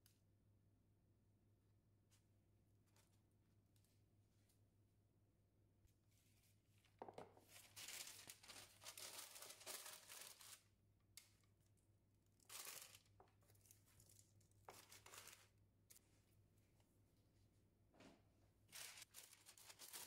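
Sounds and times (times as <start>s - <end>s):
paper rustling and crinkling: 6.2s - 10.6s, 12.4s - 15.6s, 18.7s - 20.0s.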